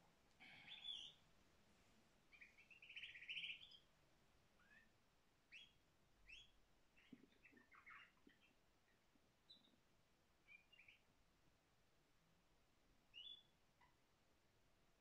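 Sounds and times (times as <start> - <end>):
canary singing: 0.7 - 1.2, 2.3 - 3.9, 4.6 - 4.9, 5.5 - 9.8, 10.4 - 11.0, 13.1 - 13.5.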